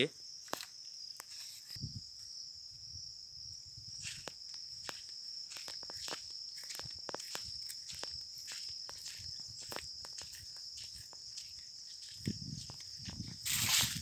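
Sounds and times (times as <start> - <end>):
crickets singing: 0.0 - 14.0
footsteps on ground: 3.9 - 14.0.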